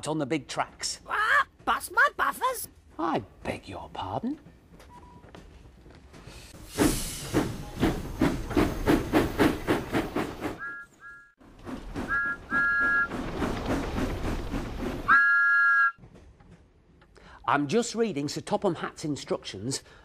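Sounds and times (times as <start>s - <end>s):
steam locomotive chuffing: 6.5s - 10.8s, 11.4s - 15.7s
train whistle toots: 10.6s - 11.3s, 12.0s - 13.1s, 15.1s - 16.0s
long whistle blast: 12.1s - 13.1s, 15.1s - 16.0s.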